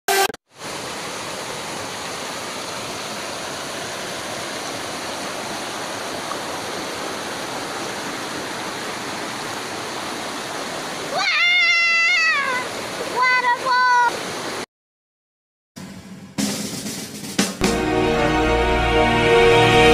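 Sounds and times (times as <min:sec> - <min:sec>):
water rushing over boulders: 0:00.5 - 0:14.7.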